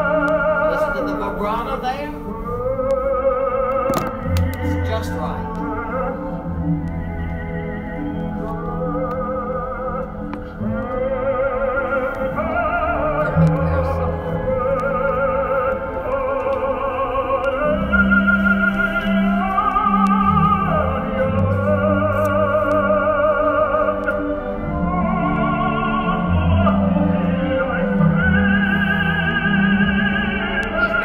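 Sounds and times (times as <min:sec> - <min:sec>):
orchestra: 0:00.0 - 0:31.0
tenor singing opera: 0:00.0 - 0:31.0.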